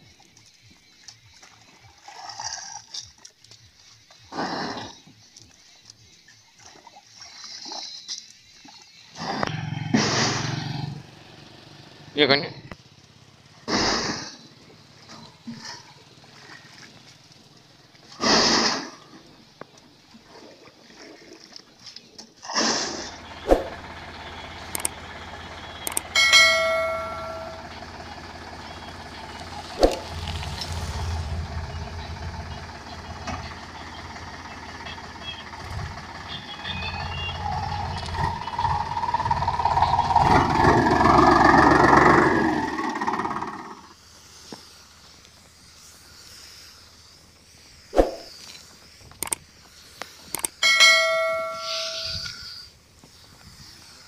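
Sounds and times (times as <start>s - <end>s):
tractor diesel engine running: 9.5s - 18.1s, 22.8s - 46.1s, 50.2s - 53.4s
sharp clicks: 24.6s - 25.0s, 25.8s - 26.1s, 49.1s - 49.4s, 50.0s - 50.6s
bell-like ringing tone: 25.7s - 29.4s, 50.6s - 52.4s.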